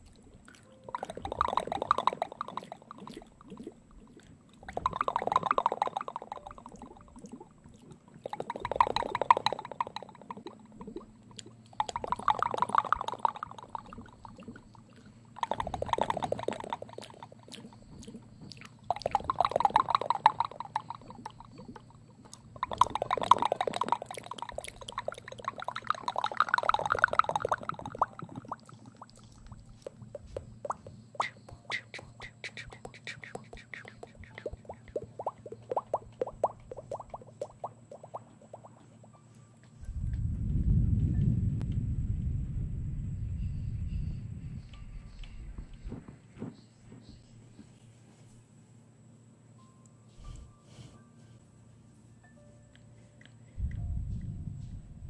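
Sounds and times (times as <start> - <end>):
wet mouth clicking and smacking: 0.0 - 38.9, 52.7 - 53.8.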